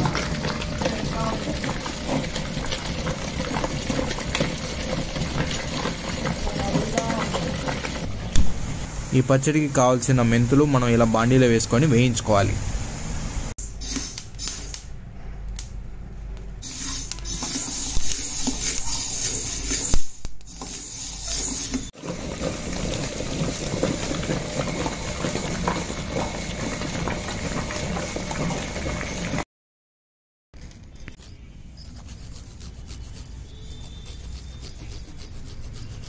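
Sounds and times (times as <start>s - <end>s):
metal spoon scraping seeds in pan: 16.6s - 21.9s, 31.0s - 36.0s
ginger rasped on grater: 31.1s - 36.0s.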